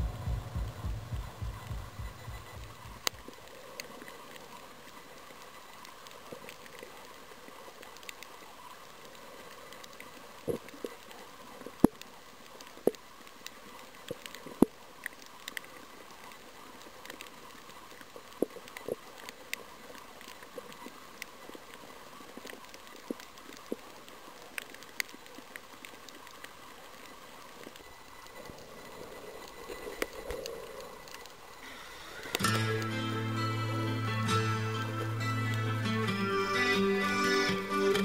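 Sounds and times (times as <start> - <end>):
low throbbing: 0.0 - 3.3
sharp underwater clicks and pops: 0.0 - 32.9
underwater hiss: 28.4 - 32.4.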